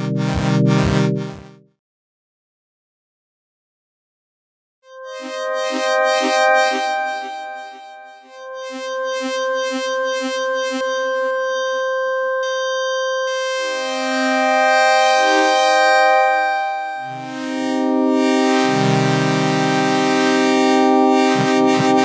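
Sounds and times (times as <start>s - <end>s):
synth pad chords: 0.0s - 1.5s, 16.8s - 22.0s.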